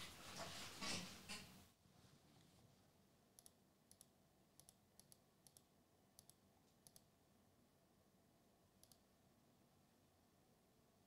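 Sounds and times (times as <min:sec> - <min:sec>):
faint sharp clicks in pairs: 0:03.4 - 0:07.1, 0:08.8 - 0:09.1.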